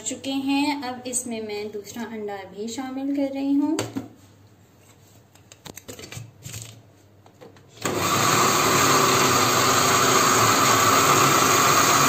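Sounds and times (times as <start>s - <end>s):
electric blender running: 7.8s - 12.0s.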